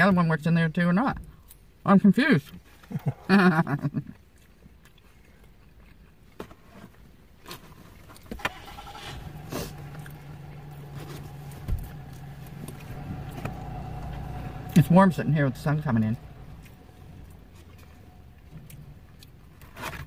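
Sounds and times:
motor vehicle engine hum: 0:08.0 - 0:20.0.

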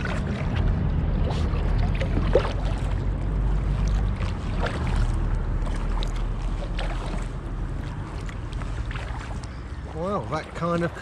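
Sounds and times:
low rumble: 0:00.0 - 0:09.6
paddle splashing in water: 0:00.0 - 0:11.0.

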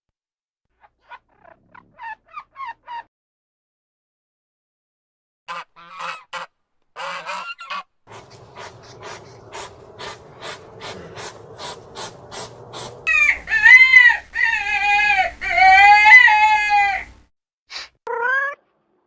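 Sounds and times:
goose honking: 0:05.5 - 0:16.8
drawn-out animal calls: 0:07.0 - 0:16.5.

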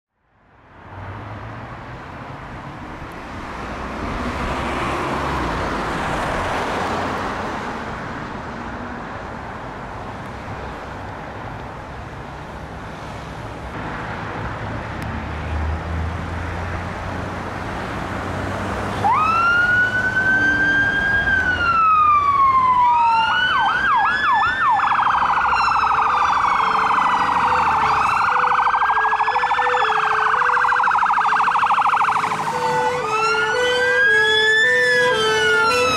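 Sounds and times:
electronic sirens wailing: 0:19.0 - 0:35.9.

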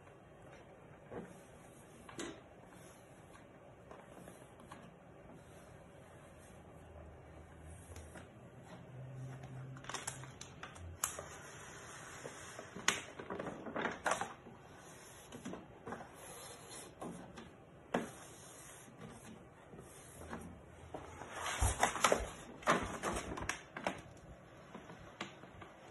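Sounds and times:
paper crackling and rustling: 0:06.2 - 0:17.5, 0:18.4 - 0:25.9.

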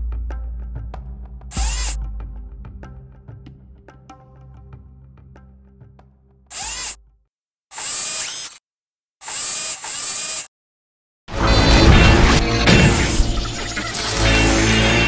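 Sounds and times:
low music drone: 0:11.3 - 0:15.0.

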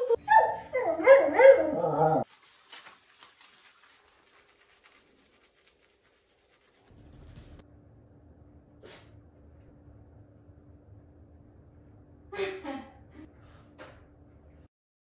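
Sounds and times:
dog howling: 0:00.0 - 0:02.3
hands lathering wet fur: 0:02.2 - 0:07.6
low steady hum: 0:06.6 - 0:14.7.

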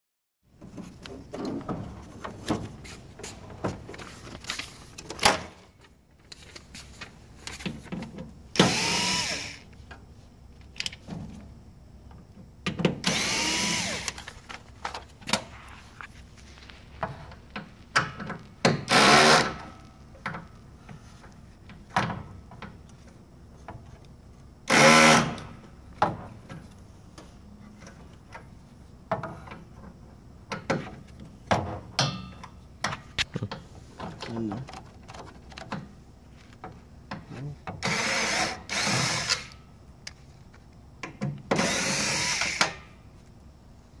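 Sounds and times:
cordless drill driving screws: 0:08.6 - 0:09.6, 0:13.0 - 0:14.2, 0:18.9 - 0:19.6, 0:37.8 - 0:39.6, 0:41.6 - 0:42.8.

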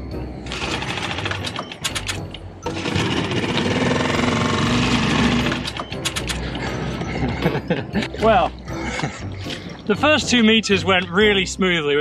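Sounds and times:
outboard motor running: 0:02.6 - 0:07.3.

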